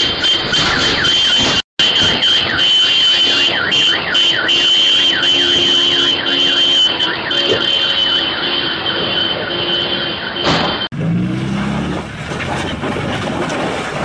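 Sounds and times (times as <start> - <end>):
car alarm wailing: 0.0 - 10.9.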